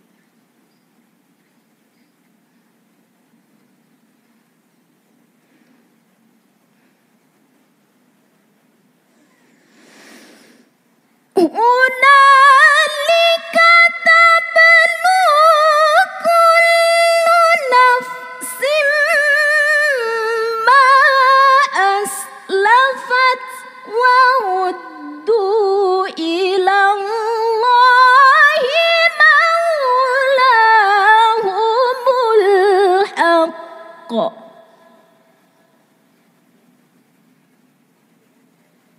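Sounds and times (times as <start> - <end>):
woman chanting melodically: 11.4 - 35.6.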